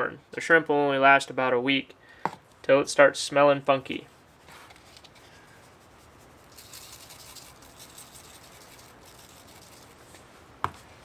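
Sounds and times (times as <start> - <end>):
granules rattling from shaker: 6.0 - 10.2.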